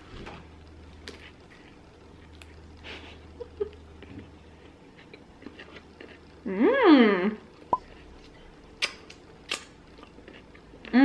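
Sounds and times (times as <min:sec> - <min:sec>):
low steady hum: 0:00.0 - 0:11.0
person chewing lettuce: 0:00.7 - 0:02.8, 0:03.7 - 0:06.4, 0:07.8 - 0:11.0.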